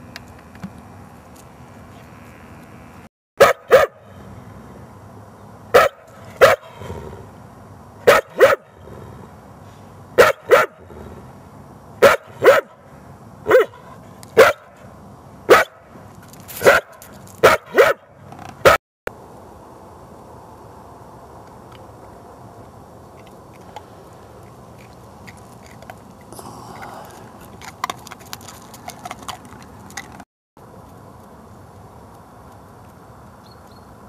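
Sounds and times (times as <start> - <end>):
dog barking: 3.4 - 4.0, 5.7 - 6.8, 8.0 - 8.7, 10.2 - 10.8, 12.0 - 12.8, 13.5 - 14.8, 15.5 - 15.8, 16.6 - 18.8.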